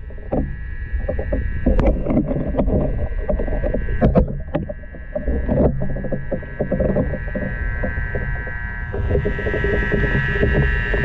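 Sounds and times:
faint high hum: 0:00.0 - 0:11.0
muffled underwater water rumble: 0:00.0 - 0:11.0
sharp knocks and clicks: 0:00.2 - 0:08.3.

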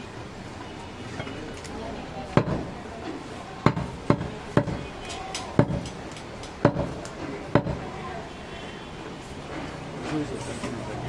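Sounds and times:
knife chopping meat on wood: 0:02.4 - 0:02.7, 0:03.6 - 0:04.9, 0:05.5 - 0:07.8.

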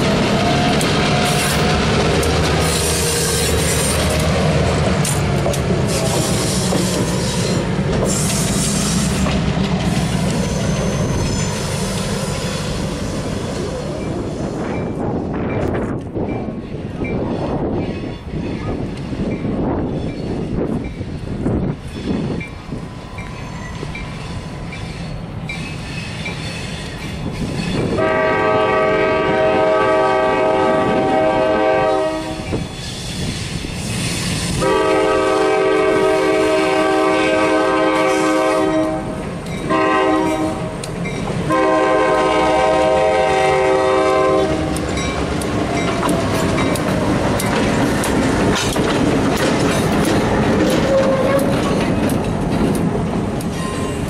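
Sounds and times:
wheels clicking over rail joints: 0:00.0 - 0:12.2, 0:44.5 - 0:54.0
locomotive engines running: 0:00.0 - 0:16.1, 0:44.5 - 0:54.0
locomotive air horn: 0:27.9 - 0:32.6, 0:34.6 - 0:40.8, 0:41.5 - 0:44.8, 0:50.8 - 0:51.6.

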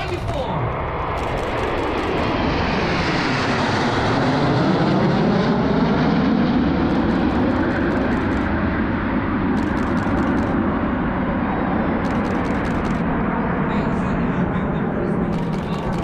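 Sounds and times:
jet aircraft flying past: 0:00.0 - 0:16.0
quick run of clicks: 0:01.2 - 0:02.4, 0:06.9 - 0:08.5, 0:09.6 - 0:10.6, 0:12.1 - 0:13.0, 0:15.3 - 0:16.0.

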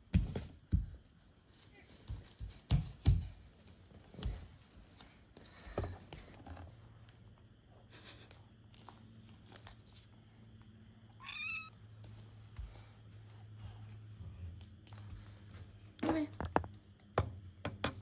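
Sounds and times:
cat meowing: 0:11.2 - 0:11.7.

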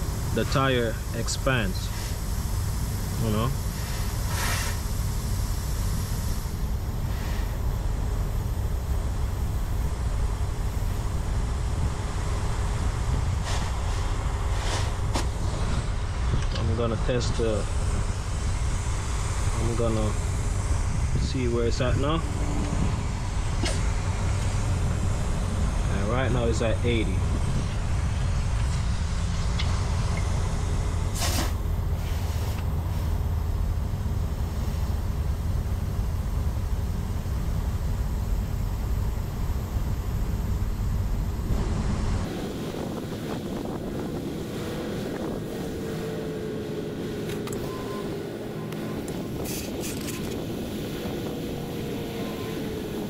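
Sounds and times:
compressed air hissing: 0:00.0 - 0:11.3, 0:13.3 - 0:16.0, 0:31.0 - 0:33.4, 0:49.0 - 0:53.0
low vehicle rumble: 0:00.0 - 0:53.0
short sharp air hisses: 0:01.9 - 0:07.6, 0:13.4 - 0:15.7, 0:31.1 - 0:33.2, 0:49.4 - 0:50.1.

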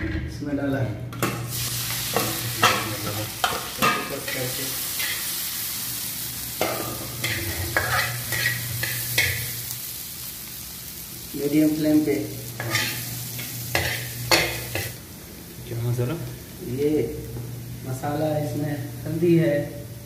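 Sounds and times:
potatoes sizzling in oil: 0:01.4 - 0:20.0
metal spatula scraping pan: 0:06.6 - 0:09.6, 0:12.6 - 0:15.0.

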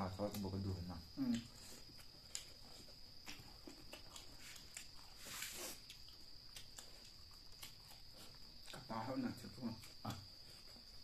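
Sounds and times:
cricket trill: 0:00.0 - 0:11.0
lip smacks and chewing: 0:00.2 - 0:08.9
hiss-like noise: 0:04.4 - 0:06.2.

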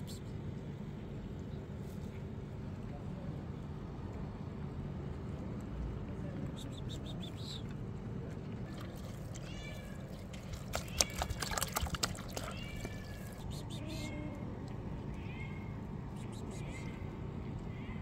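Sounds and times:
cats meowing: 0:09.2 - 0:18.0
water glugging into plastic tub: 0:10.1 - 0:13.4.

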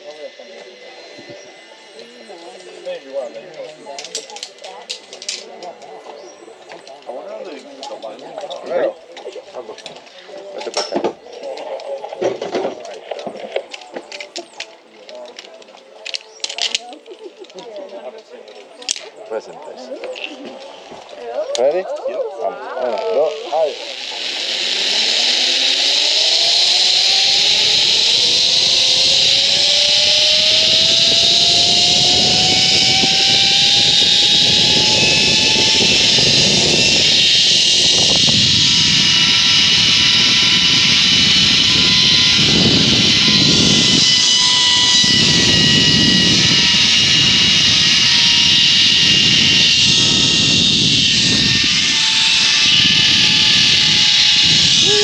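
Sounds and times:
zip-line pulleys whining on cable: 0:00.0 - 0:08.9, 0:22.4 - 0:55.0
wind rushing on microphone: 0:24.9 - 0:55.0.

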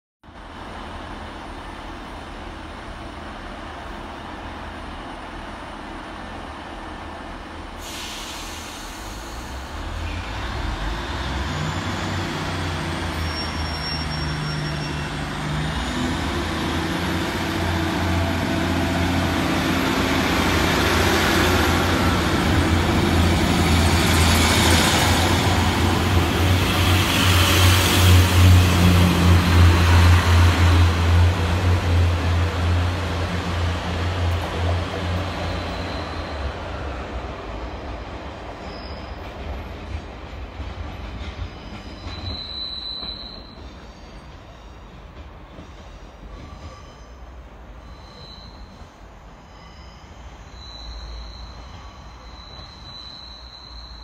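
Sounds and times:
hiss of air: 0:07.8 - 0:10.0.

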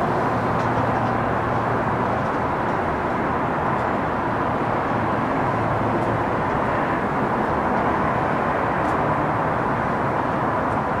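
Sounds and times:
train wheels rumbling on track: 0:00.0 - 0:11.0.

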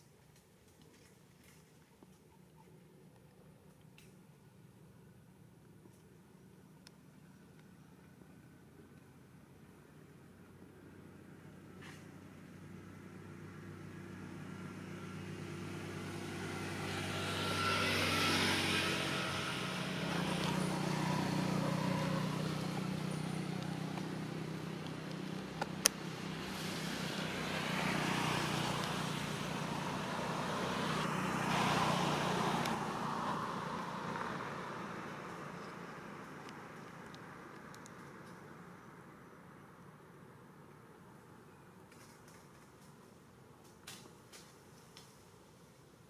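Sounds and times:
vehicle engine running: 0:11.8 - 0:38.8.

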